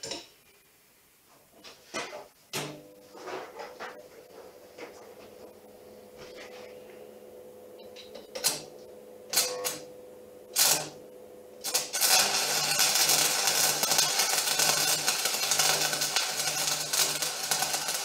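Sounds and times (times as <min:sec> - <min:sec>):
arc welding crackling: 0:08.3 - 0:18.0
welding electrode sputtering: 0:08.4 - 0:09.8, 0:10.5 - 0:11.0, 0:11.6 - 0:18.0.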